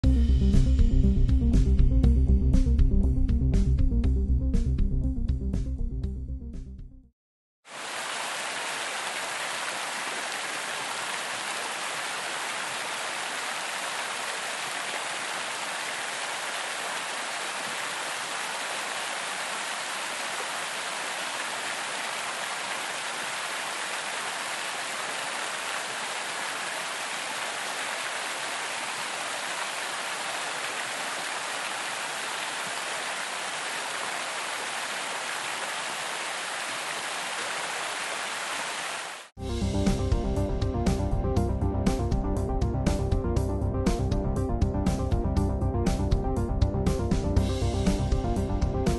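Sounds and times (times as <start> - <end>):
fountain water splashing: 7.7 - 39.3.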